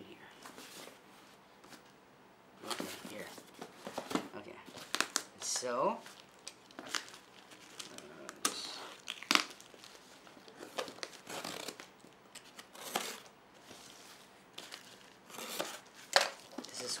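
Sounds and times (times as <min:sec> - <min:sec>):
plastic pouch crinkling: 0:06.0 - 0:13.3, 0:14.5 - 0:17.0.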